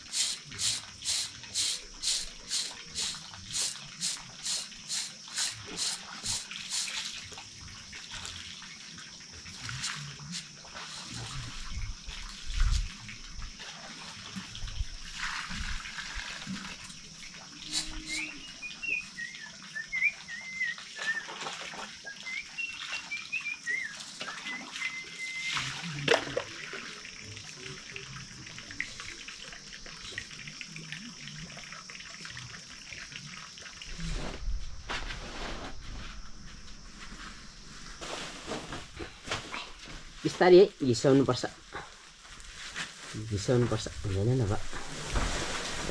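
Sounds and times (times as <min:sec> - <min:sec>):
steady high-pitched hiss: 0:00.0 - 0:20.9, 0:22.0 - 0:45.9
bird chirping: 0:17.7 - 0:20.8
knocks and rustles of soil: 0:33.9 - 0:40.6, 0:41.8 - 0:45.9.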